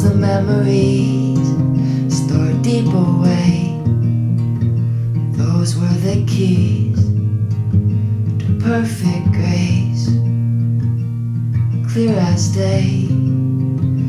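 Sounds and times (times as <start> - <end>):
man singing: 0.0 - 3.8, 5.4 - 7.1, 8.4 - 10.2, 11.9 - 13.3
acoustic guitar strummed and picked: 0.0 - 14.0.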